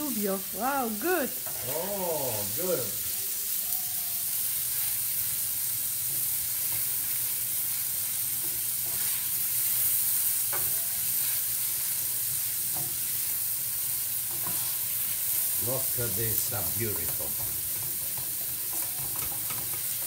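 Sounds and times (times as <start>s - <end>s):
onions sizzling in oil: 0.0s - 20.0s
wooden spoon stirring in pan: 4.3s - 20.0s.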